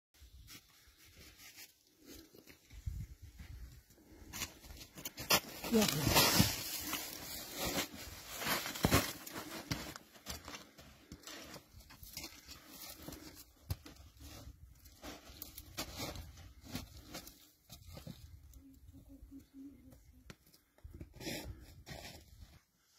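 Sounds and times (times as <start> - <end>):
footsteps on rock and snow: 0.4 - 18.3
plastic sack rustling and crinkling: 5.4 - 10.0.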